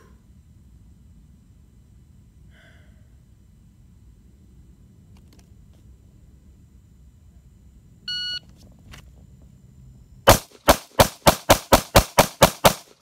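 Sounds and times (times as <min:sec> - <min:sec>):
rapid handgun shots: 0:10.3 - 0:13.0.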